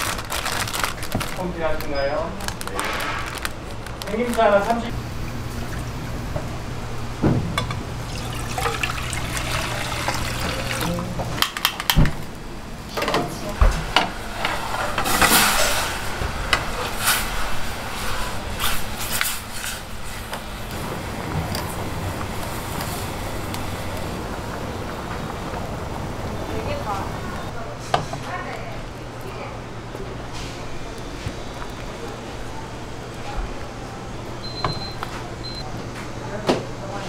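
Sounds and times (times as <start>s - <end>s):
liquid splashing: 8.0s - 11.1s.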